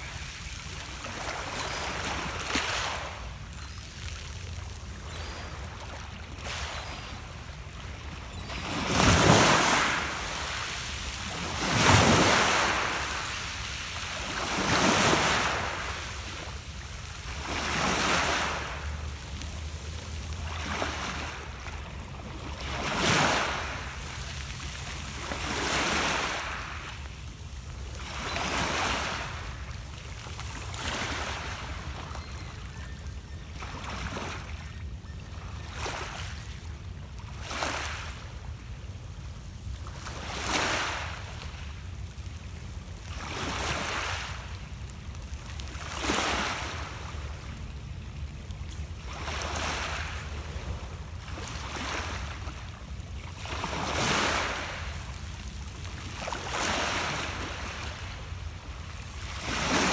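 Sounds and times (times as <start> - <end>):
waves washing up pebble beach: 0.0 - 3.4, 8.6 - 21.6, 30.7 - 31.8.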